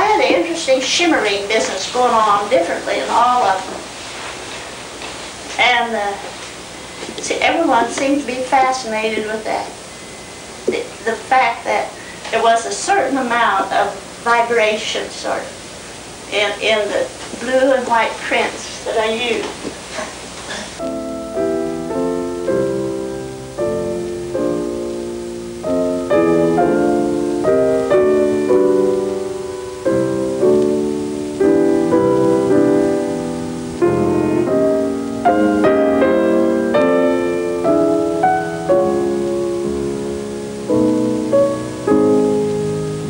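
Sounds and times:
piano notes and chords: 20.8s - 43.0s.

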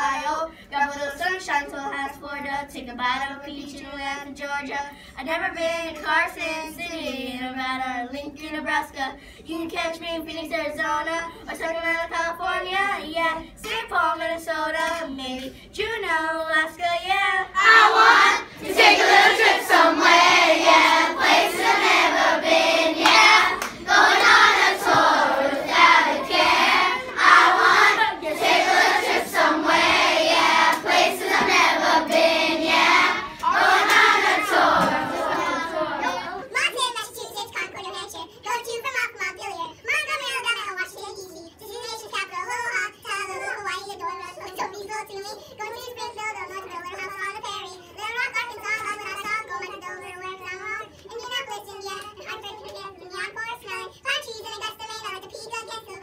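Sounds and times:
children singing together: 17.5s - 36.5s.

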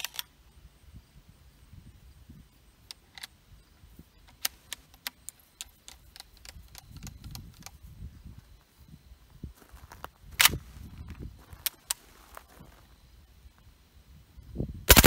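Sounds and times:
sharp metallic gun clicks: 0.0s - 0.3s.

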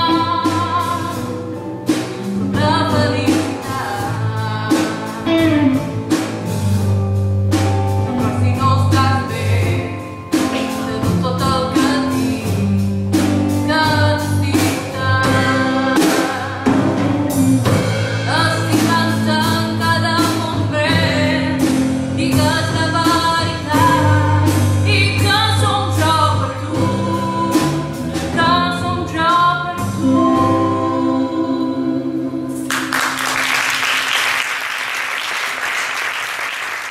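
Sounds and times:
live band with singing: 0.0s - 34.8s
audience applause: 32.7s - 36.9s.

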